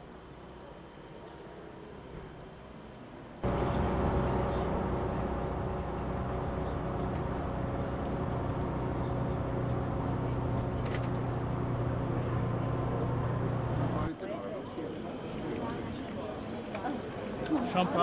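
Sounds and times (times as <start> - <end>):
vehicle engine hum and road noise: 3.4 - 14.1.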